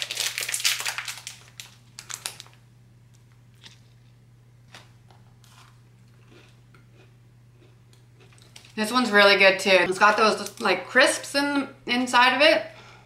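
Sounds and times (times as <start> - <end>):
foil wrapper crinkling and tearing: 0.0 - 2.6, 10.3 - 10.6
faint crunches of chewing: 3.5 - 8.8.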